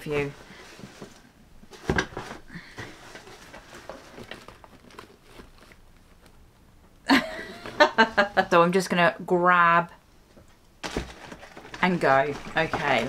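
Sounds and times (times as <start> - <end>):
cardboard box rustling: 0.2 - 6.2, 10.8 - 13.0.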